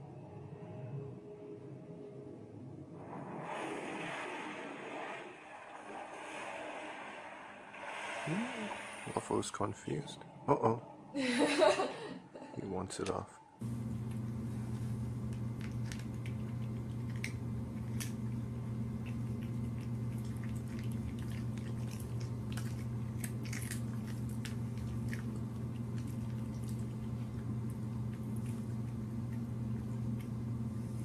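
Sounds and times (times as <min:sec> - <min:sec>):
steady low hum: 0:00.0 - 0:31.0
cat crunching dry kibble: 0:15.2 - 0:30.4.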